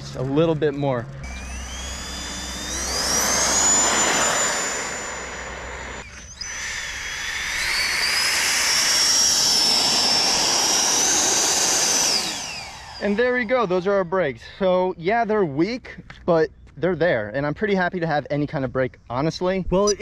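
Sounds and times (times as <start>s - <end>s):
electric ducted fan whining: 0.0s - 15.8s.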